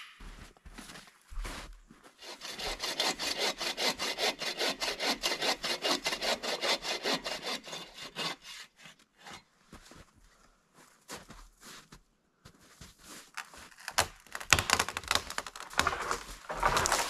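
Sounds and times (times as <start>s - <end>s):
hand saw cutting wood: 2.2s - 9.4s, 14.0s - 17.0s.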